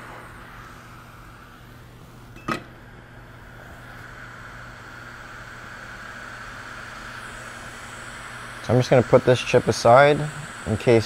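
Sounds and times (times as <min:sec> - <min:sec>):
hot air station hissing: 0:00.0 - 0:11.0.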